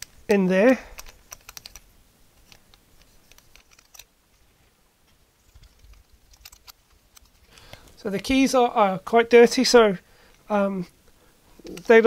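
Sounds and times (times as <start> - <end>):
cotton bud scratching plastic buttons: 1.0 - 1.8.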